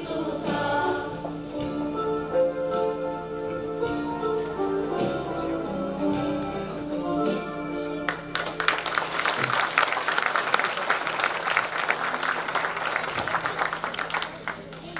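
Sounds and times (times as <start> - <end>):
music with tambourine: 0.1 - 3.2, 3.8 - 7.7
audience applause: 8.1 - 14.9.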